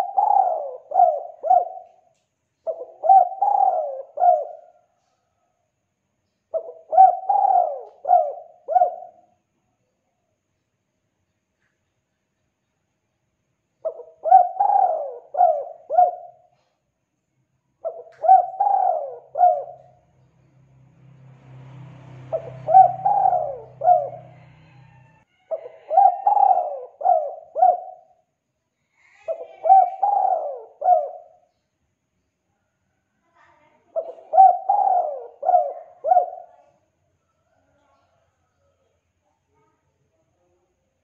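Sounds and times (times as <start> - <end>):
dove cooing: 0.0 - 4.9, 6.5 - 9.3, 13.8 - 16.6, 17.8 - 20.0, 22.3 - 28.2, 29.2 - 31.5, 33.9 - 36.8.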